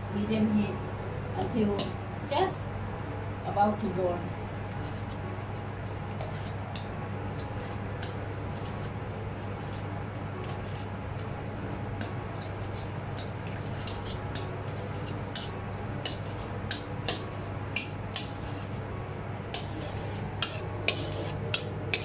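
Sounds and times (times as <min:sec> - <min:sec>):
steady low hum: 0:00.0 - 0:22.0
metal ladle scraping a wok: 0:19.6 - 0:22.0.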